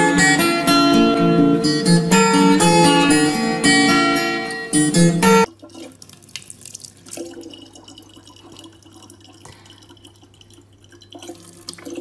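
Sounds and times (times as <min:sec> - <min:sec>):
tap water pouring into bottle: 0:05.5 - 0:12.0.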